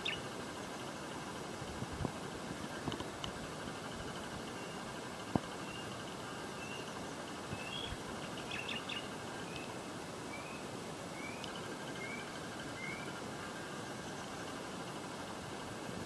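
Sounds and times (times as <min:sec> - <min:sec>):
steady background hiss: 0:00.0 - 0:16.0
bird chirping: 0:07.6 - 0:09.7.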